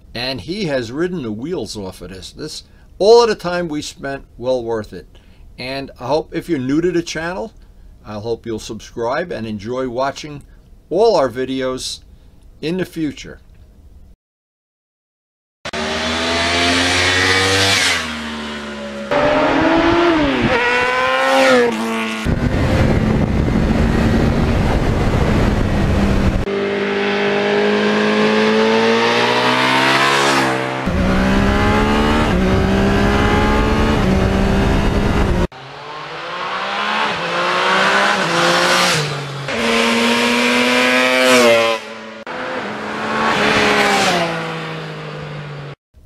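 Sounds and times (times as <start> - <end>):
motorcycle engines revving: 15.7 - 45.8.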